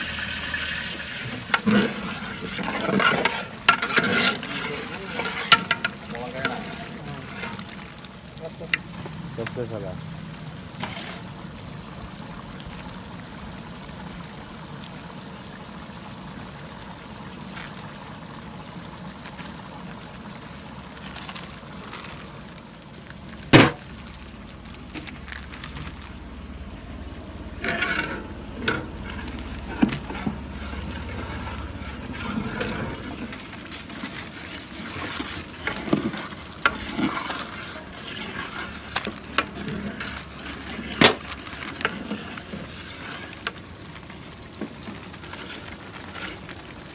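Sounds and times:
ladle stirring pot: 0:00.0 - 0:08.1, 0:27.6 - 0:46.7
curry simmering with low hiss: 0:00.0 - 0:46.9
spice packets rustling: 0:20.9 - 0:26.5, 0:28.3 - 0:46.9.

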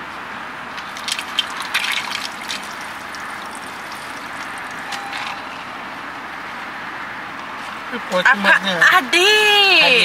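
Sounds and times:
liquid trickling onto ground: 0:00.7 - 0:05.5.

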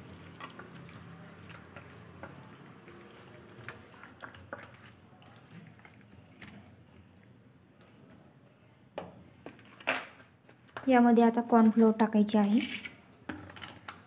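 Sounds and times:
wet squelches of hand mixing: 0:00.0 - 0:08.1.

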